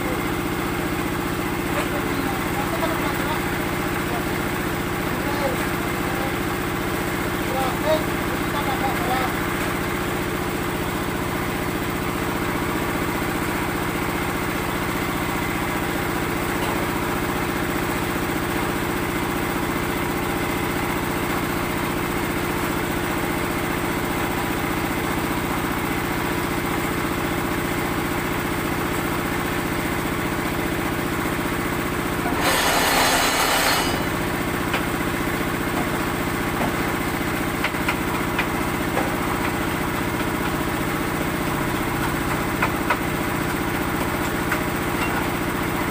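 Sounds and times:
block making machine engine: 0:32.2 - 0:34.9
harsh mechanical burst: 0:32.3 - 0:34.1.

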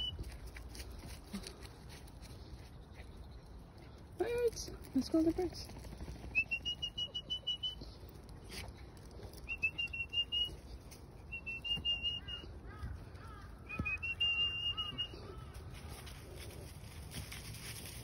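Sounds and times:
high whistled trills: 0:06.4 - 0:08.0, 0:09.4 - 0:12.4, 0:13.7 - 0:15.2.

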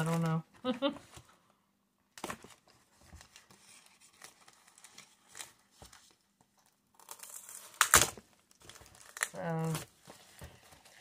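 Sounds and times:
cardboard box torn open: 0:07.0 - 0:09.9.

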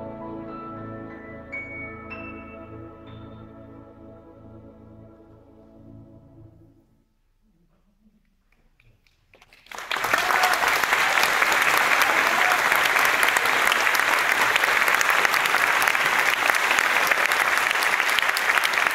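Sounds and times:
audience applause: 0:09.3 - 0:18.9.

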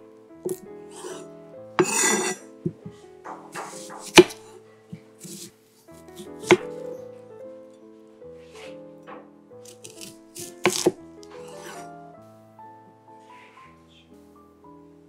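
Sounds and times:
soft background music: 0:00.0 - 0:15.0
knife slicing onion: 0:01.8 - 0:02.4, 0:03.6 - 0:04.4, 0:06.2 - 0:06.7, 0:09.6 - 0:11.9
knife knocking on wooden board: 0:06.4 - 0:06.7.

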